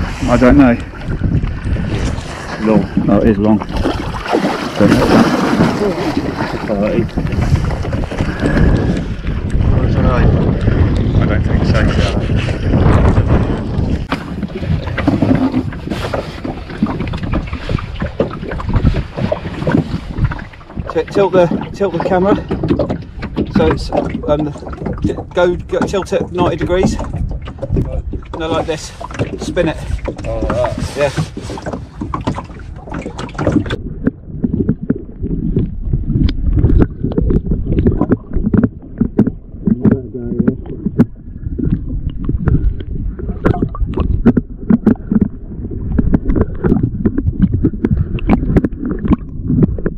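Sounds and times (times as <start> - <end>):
muffled underwater rumbling: 0.0 - 49.9
water splashing: 0.0 - 49.9
wind buffeting microphone: 0.0 - 49.9
knocks and rustles handling fish: 11.7 - 35.7, 36.6 - 49.9.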